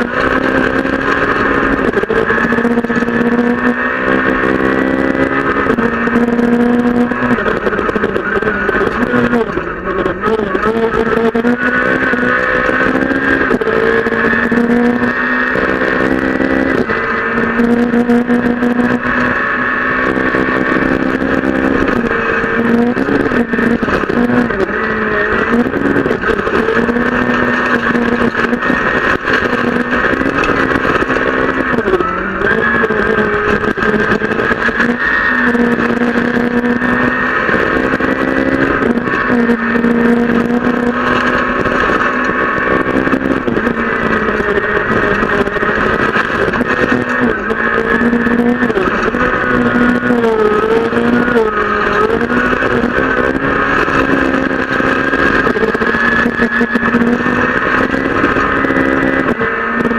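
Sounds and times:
rally car engine at high revs: 0.0s - 59.9s
gravel rattling against underbody: 5.0s - 59.9s.

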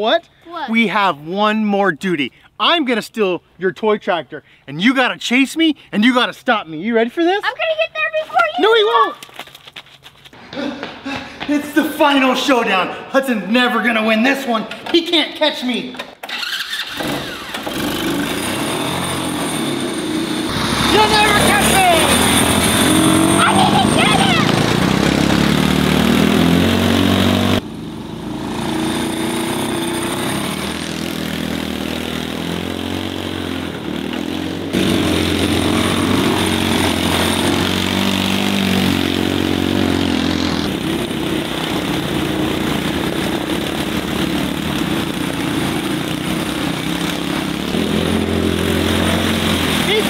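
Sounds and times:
small vehicle engines running: 16.2s - 50.0s.

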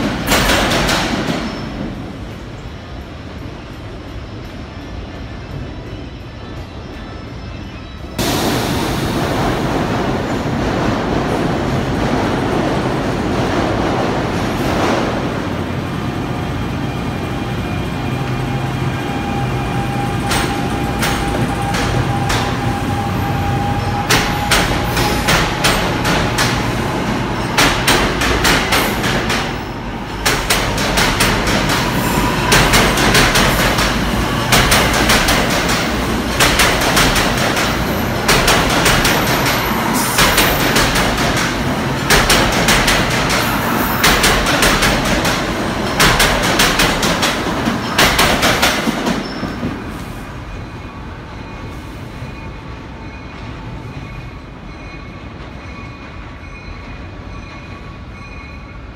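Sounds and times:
train rumble: 0.0s - 58.9s
faint train whine: 1.4s - 10.5s, 14.2s - 46.5s.

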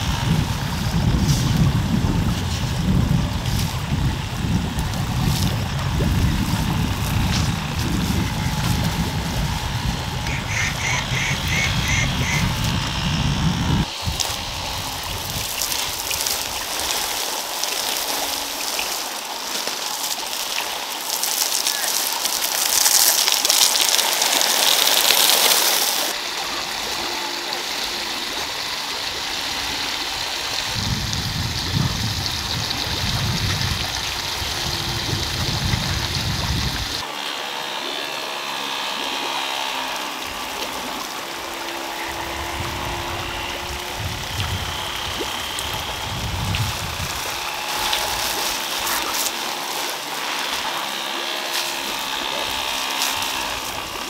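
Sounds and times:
running water rushing: 0.0s - 54.0s.

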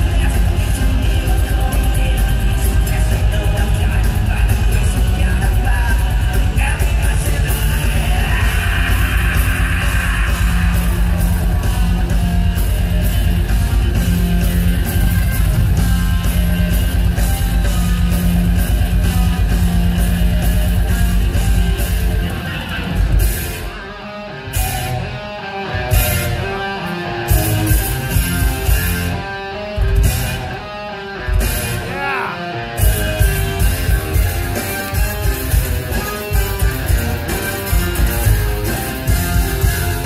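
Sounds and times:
person singing: 0.0s - 11.8s, 31.7s - 32.6s
fast drums with cymbals: 0.0s - 23.6s, 27.3s - 29.2s, 29.8s - 30.5s, 32.8s - 40.0s
steady bass: 0.0s - 23.9s, 24.5s - 40.0s
distorted electric guitar: 0.0s - 40.0s.

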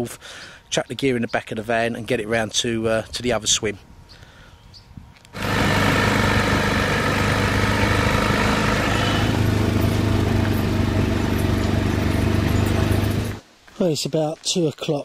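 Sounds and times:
road noise: 5.3s - 13.5s
vehicle engine running: 5.4s - 13.4s.

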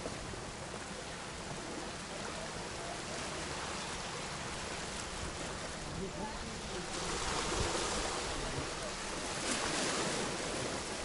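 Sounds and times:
waves washing onto pebble beach: 4.2s - 11.0s.

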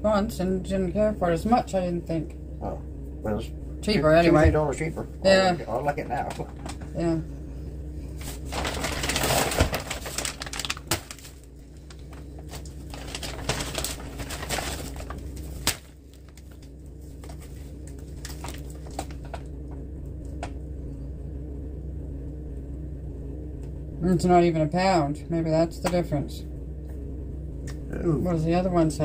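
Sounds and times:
steady low hum: 0.0s - 29.0s
groceries rustling and clicking: 8.2s - 19.5s.

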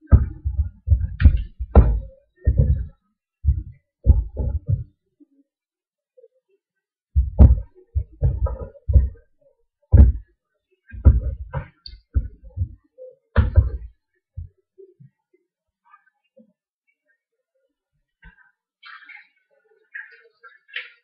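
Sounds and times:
dull thumps on a counter: 0.1s - 2.9s, 7.2s - 9.2s, 9.9s - 10.2s, 11.0s - 12.8s, 13.4s - 13.9s.

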